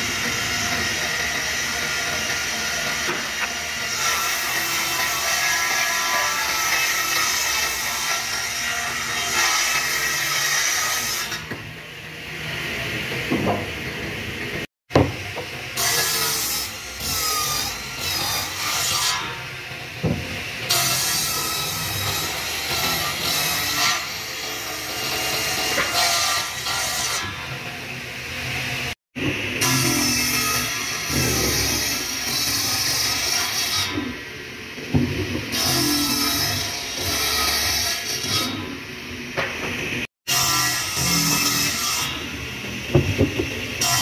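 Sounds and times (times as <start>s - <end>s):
circular saw cutting wood: 0.0s - 44.0s.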